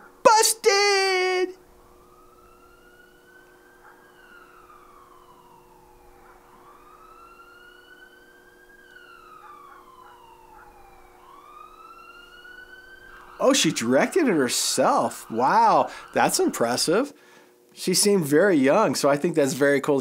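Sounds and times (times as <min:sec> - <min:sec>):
police siren wailing: 0:00.0 - 0:17.2
faint steady hum: 0:00.0 - 0:20.0.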